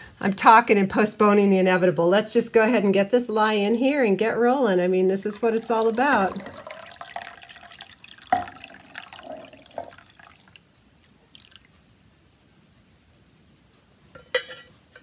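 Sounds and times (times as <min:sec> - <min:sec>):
liquid trickling and splashing: 0:05.2 - 0:12.0.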